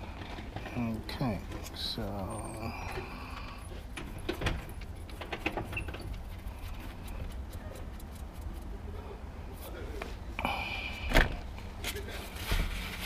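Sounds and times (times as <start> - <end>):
metallic clicks and scrapes: 3.6 - 8.8.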